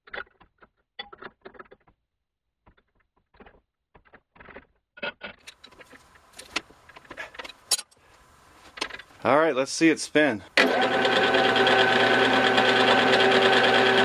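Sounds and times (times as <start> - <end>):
steel parts being handled: 5.3 - 8.0.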